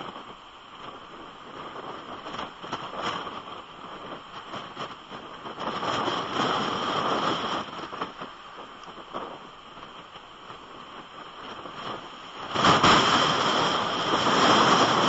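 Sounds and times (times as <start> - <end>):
driving rain: 0.0 - 15.0
raindrops hitting housing: 0.0 - 15.0
storm wind buffeting microphone: 0.0 - 15.0.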